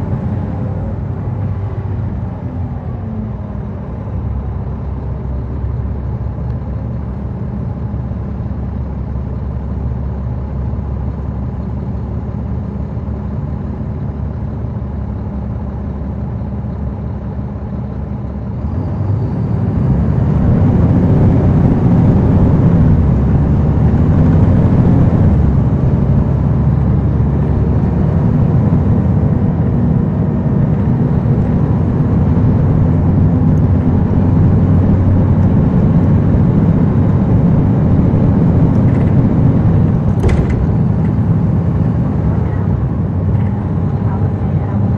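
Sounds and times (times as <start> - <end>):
bus diesel engine accelerating: 0.0 - 44.9.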